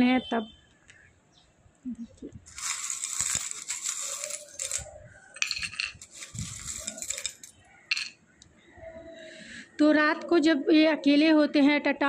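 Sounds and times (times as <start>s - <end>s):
metal trinkets jingling: 2.5s - 8.2s.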